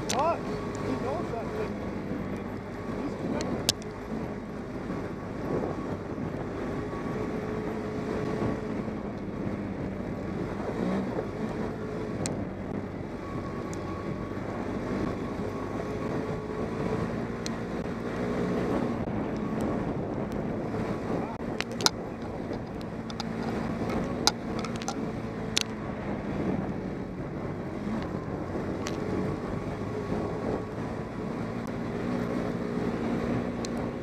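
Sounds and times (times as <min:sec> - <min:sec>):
atv engine running: 0:00.0 - 0:34.0
tyres on rocky trail: 0:00.0 - 0:34.0
sharp ticks: 0:21.6 - 0:25.7.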